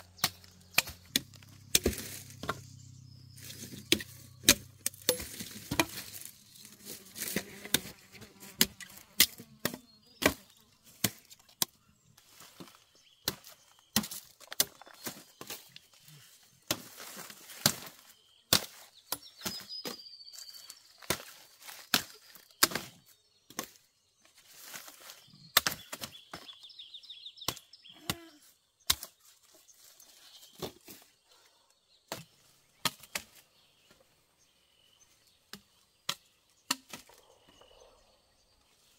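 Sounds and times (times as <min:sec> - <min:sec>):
blade chopping sugarcane: 0:00.1 - 0:02.6, 0:03.4 - 0:06.3, 0:21.0 - 0:23.8.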